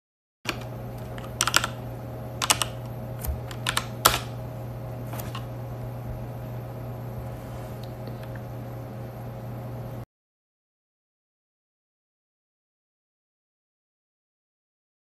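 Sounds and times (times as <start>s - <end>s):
steady low hum: 0.5s - 10.1s.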